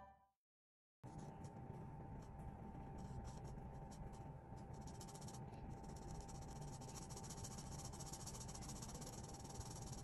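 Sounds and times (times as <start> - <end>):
marker scratching on paper: 3.0 - 10.0.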